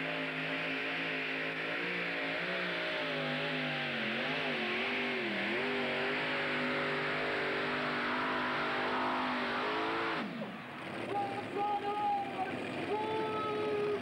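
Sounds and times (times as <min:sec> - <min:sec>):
tractor engines running hard: 0:00.0 - 0:14.0.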